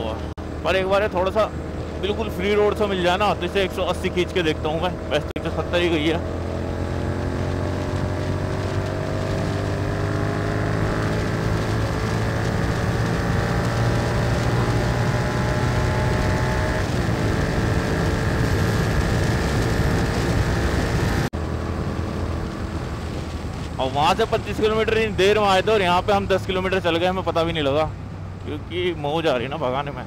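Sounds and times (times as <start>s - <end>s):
motorcycle engine at high speed: 0.0s - 23.8s.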